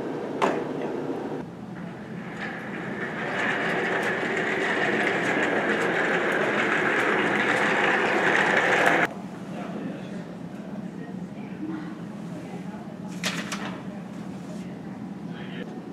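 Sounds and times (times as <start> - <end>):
office chair casters rolling: 1.7 - 9.1.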